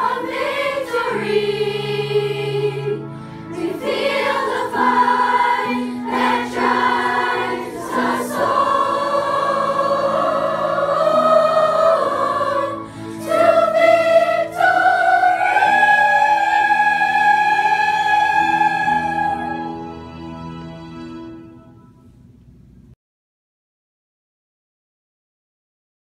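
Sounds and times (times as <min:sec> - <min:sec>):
children's choir singing: 0:00.0 - 0:20.0.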